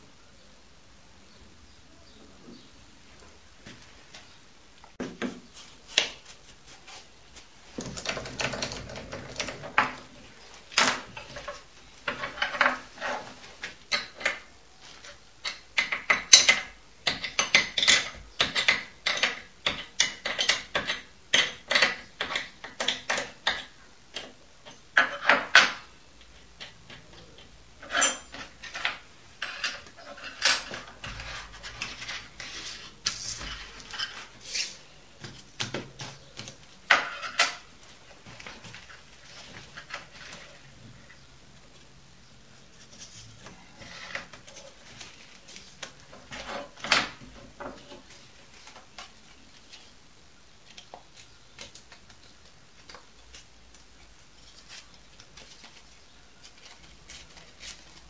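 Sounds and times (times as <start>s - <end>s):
metal parts clinking: 27.8s - 30.9s.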